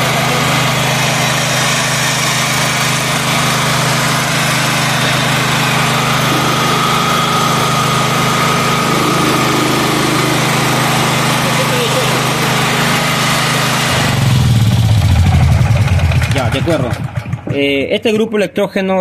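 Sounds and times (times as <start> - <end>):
generator engine running: 0.0 - 18.2
high whine: 4.7 - 17.6.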